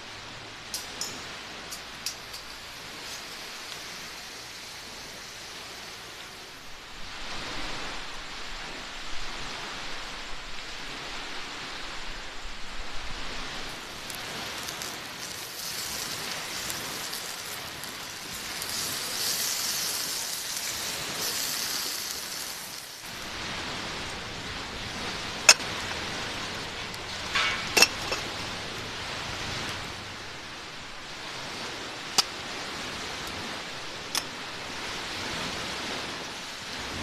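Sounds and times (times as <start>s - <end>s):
meat sizzling over embers: 0.6s - 8.1s, 13.0s - 37.0s.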